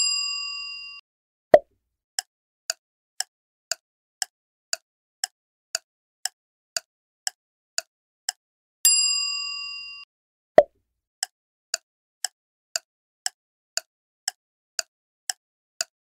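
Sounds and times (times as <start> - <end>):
clock ticking: 4.2 - 5.4, 6.2 - 8.4, 13.2 - 14.4, 15.3 - 15.9.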